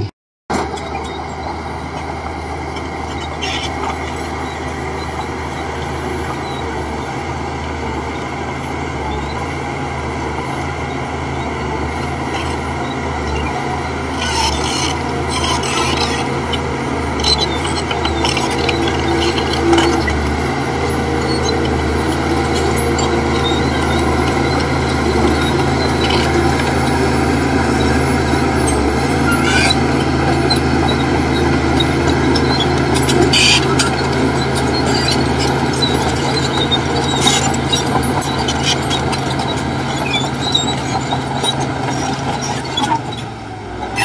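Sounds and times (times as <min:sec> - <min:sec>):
bulldozer diesel engine running: 0:00.0 - 0:44.0
rasping grinding noise: 0:11.6 - 0:44.0.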